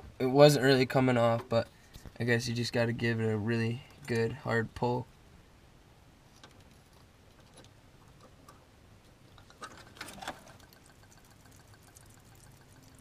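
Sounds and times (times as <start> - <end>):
faint fast ticking: 10.5 - 13.0.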